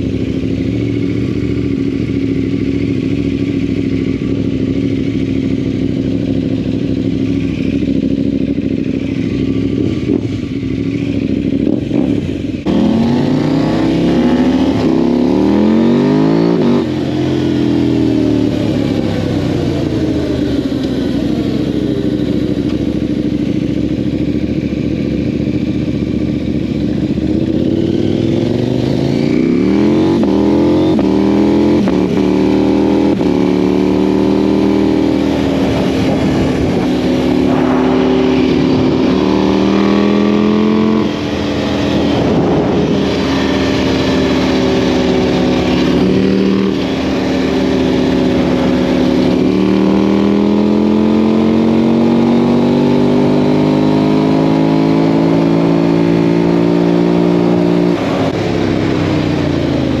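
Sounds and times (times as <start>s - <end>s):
quad engine revving: 11.4s - 22.9s, 24.9s - 60.0s.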